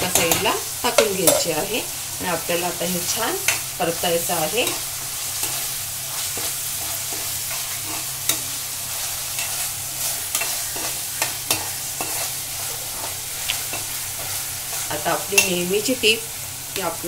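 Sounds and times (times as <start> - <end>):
onions sizzling in hot oil: 0.0 - 17.0
spatula scraping and clicking on pan: 4.6 - 15.6.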